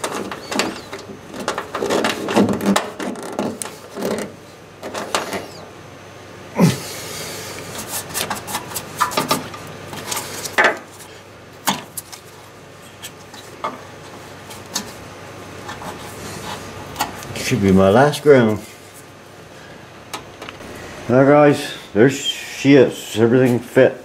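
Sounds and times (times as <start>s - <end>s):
rubbing and scraping: 0.0s - 4.4s.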